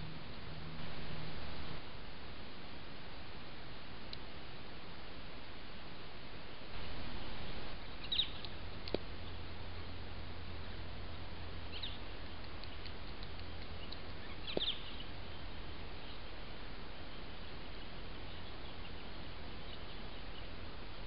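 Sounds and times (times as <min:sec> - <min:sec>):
low electrical hum: 0:00.0 - 0:21.0
microphone hiss: 0:00.0 - 0:21.0
high bird chirps: 0:07.8 - 0:08.6, 0:11.7 - 0:12.9, 0:13.6 - 0:15.4.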